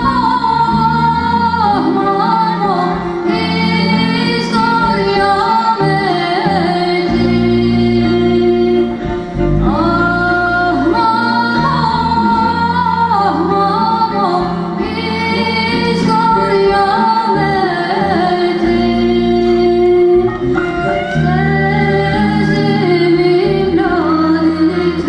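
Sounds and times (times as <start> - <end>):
sustained instrumental accompaniment: 0.0 - 25.0
woman singing folk song: 0.0 - 25.0.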